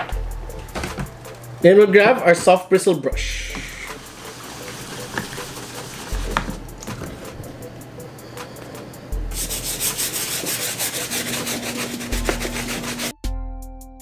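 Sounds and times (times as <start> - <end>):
brush scrubbing sneaker: 3.4 - 7.5, 9.3 - 13.2.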